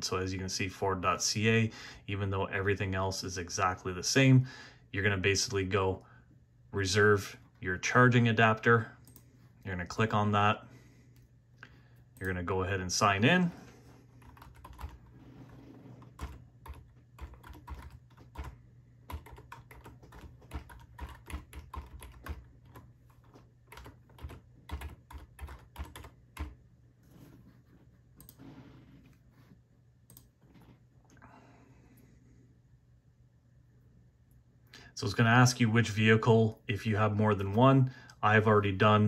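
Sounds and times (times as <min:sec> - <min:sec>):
typing on computer keyboard: 0:14.2 - 0:15.1, 0:16.0 - 0:26.6.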